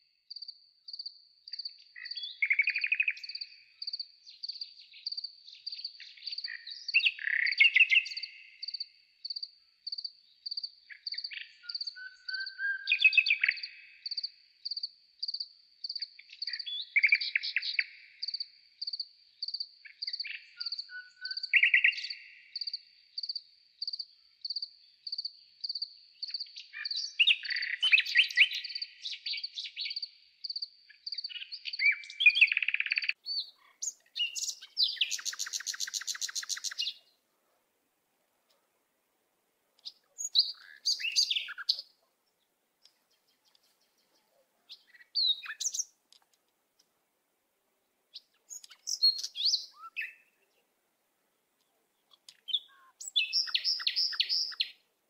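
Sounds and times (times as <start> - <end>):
birds chirping and singing: 1.5 - 8.9, 10.4 - 37.1, 39.8 - 42.0, 42.8 - 45.9, 48.2 - 50.6, 51.6 - 54.8
fast loud bird trill: 52.5 - 54.7
repeating high-pitched chirp: 52.5 - 54.7.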